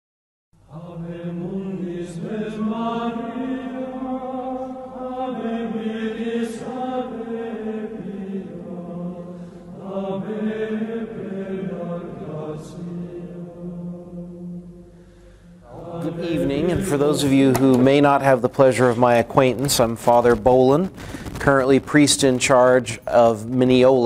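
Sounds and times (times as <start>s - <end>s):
slow sung chant: 0.6s - 20.4s.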